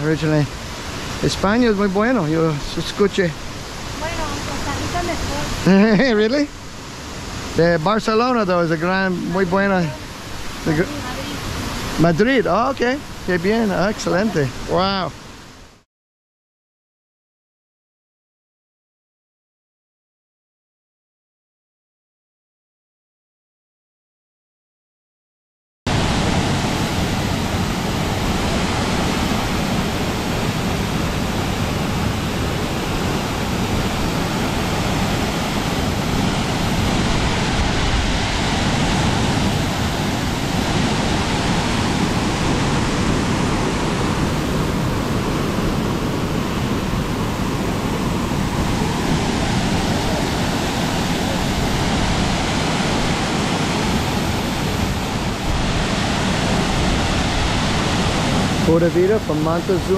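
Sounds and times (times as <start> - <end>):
waterfall rushing: 0.0 - 15.5, 25.9 - 59.9.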